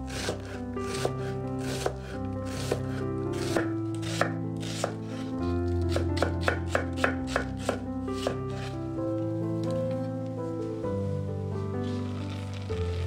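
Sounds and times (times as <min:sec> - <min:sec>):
knife chopping on wooden board: 0:00.1 - 0:08.7.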